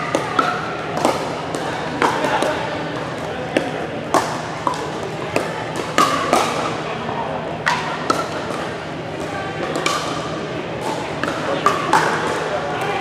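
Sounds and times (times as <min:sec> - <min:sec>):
murmur of voices in gym: 0:00.0 - 0:13.0
paddles striking plastic ball: 0:07.6 - 0:12.4.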